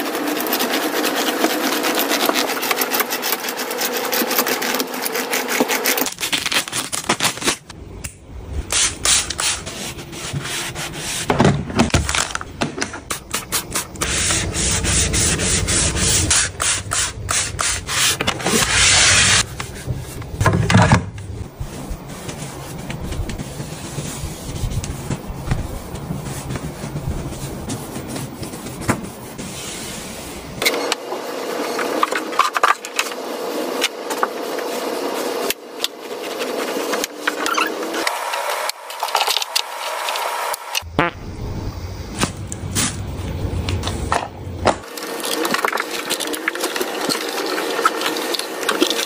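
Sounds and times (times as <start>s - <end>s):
brush scrubbing a mattress: 0.0s - 6.3s, 8.8s - 11.3s, 13.2s - 20.2s, 21.5s - 30.4s, 34.4s - 39.1s, 45.0s - 49.0s
cloths wiping hard surfaces: 8.8s - 11.4s, 21.4s - 30.4s.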